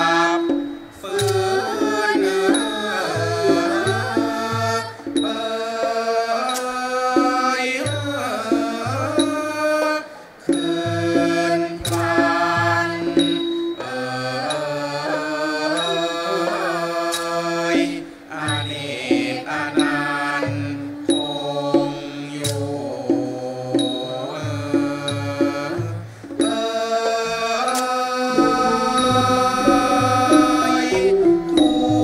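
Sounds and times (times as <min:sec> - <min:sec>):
xylophone: 0:00.0 - 0:09.7, 0:10.5 - 0:32.0
drum: 0:00.0 - 0:15.8, 0:17.1 - 0:32.0
male chorus singing: 0:00.0 - 0:32.0
small metallic strikes: 0:10.5 - 0:16.2, 0:26.3 - 0:32.0.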